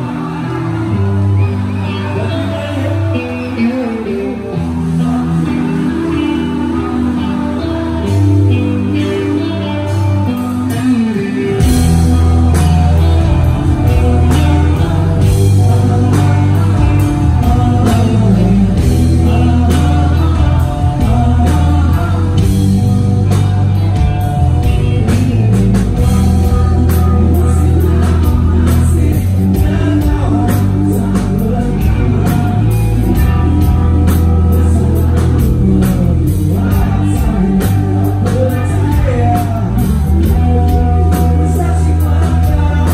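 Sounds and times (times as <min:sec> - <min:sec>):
bass guitar: 0:00.0 - 0:42.9
electric guitars: 0:00.0 - 0:42.9
person singing: 0:00.0 - 0:42.9
drum kit: 0:09.9 - 0:42.9.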